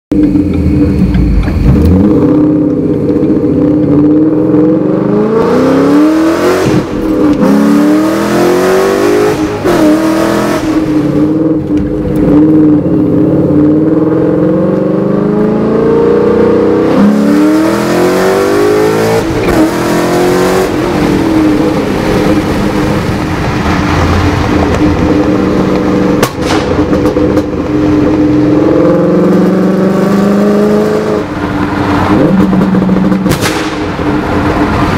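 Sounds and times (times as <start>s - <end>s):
car engine revving: 0.1s - 34.9s
exhaust cracks: 20.7s - 28.2s, 31.9s - 34.9s.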